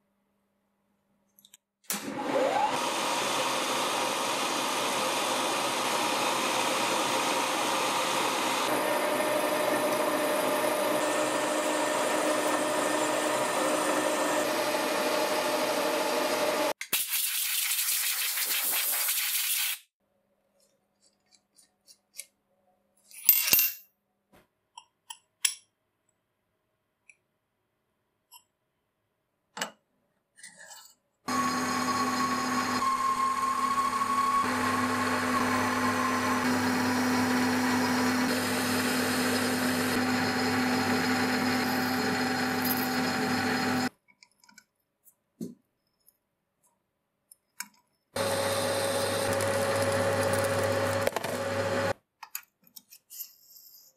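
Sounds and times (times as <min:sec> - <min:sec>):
metal lathe humming and whining: 0:02.1 - 0:16.7, 0:31.3 - 0:43.9, 0:48.2 - 0:51.9.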